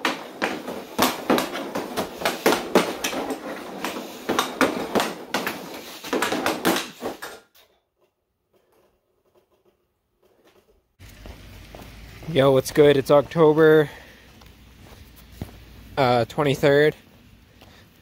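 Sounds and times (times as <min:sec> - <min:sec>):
hockey stick tapping puck: 0:00.0 - 0:07.5.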